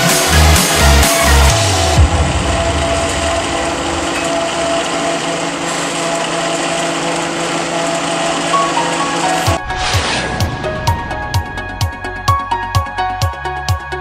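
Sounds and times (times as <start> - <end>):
machinery drone: 0.0 - 13.0
steady hum tones: 1.6 - 8.4, 9.2 - 12.6
broad rushing noise: 9.5 - 12.2.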